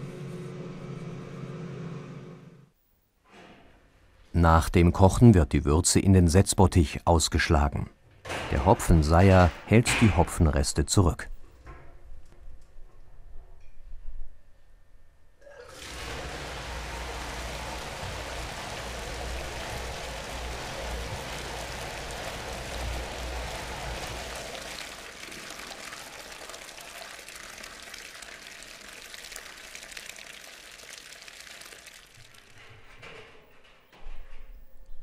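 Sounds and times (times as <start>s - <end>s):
liquid pouring into steel tank: 15.4s - 33.1s.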